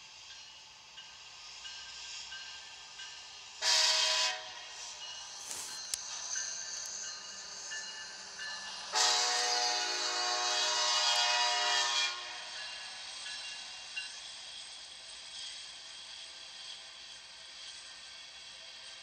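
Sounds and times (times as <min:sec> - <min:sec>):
locomotive air horn blasts: 0:03.6 - 0:04.7, 0:08.9 - 0:12.6.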